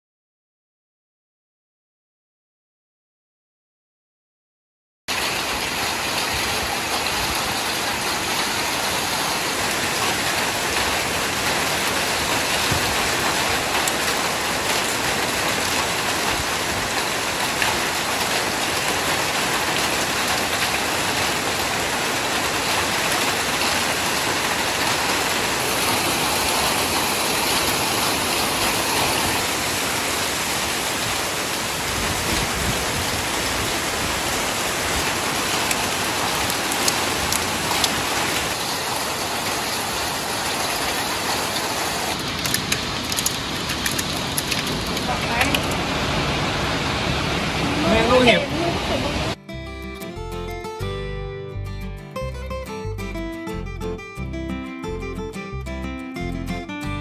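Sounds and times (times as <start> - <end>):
hail and rain on metal roof: 5.1 - 49.3.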